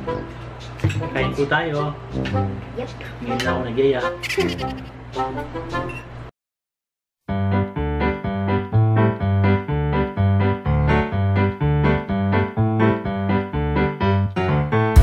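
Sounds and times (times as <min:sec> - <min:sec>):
electric keyboard chords: 0:07.3 - 0:15.0.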